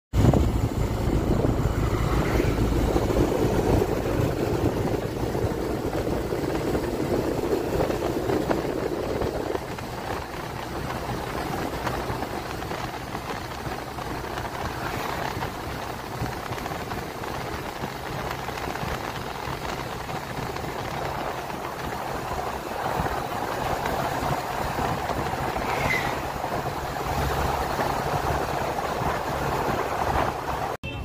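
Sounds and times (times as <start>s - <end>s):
motorcycle engine hum: 0.1s - 31.0s
wind and road noise: 0.1s - 31.0s.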